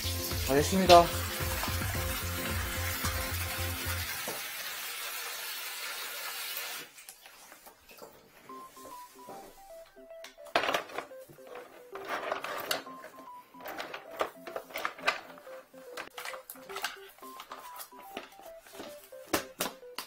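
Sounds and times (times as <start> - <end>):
simple beep-like melody: 8.5 - 20.0.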